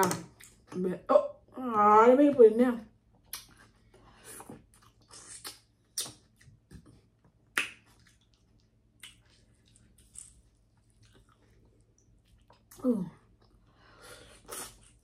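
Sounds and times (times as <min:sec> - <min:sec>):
wet mouth clicks and smacks: 0:03.2 - 0:03.6, 0:04.8 - 0:06.5, 0:07.5 - 0:11.4
chewing sounds: 0:03.2 - 0:13.7.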